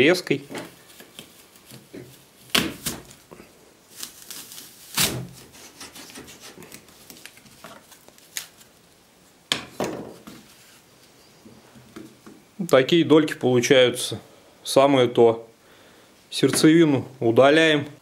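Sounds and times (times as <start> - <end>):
rubbing: 4.0 - 6.9.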